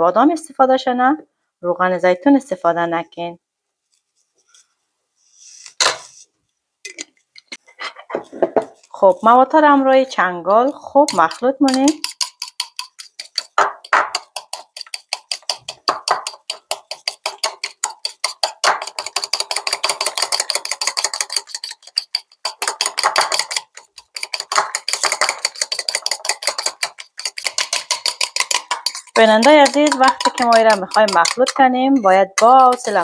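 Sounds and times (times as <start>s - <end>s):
fork beating paste in ceramic bowl: 6.9s - 9.9s, 10.5s - 33.0s.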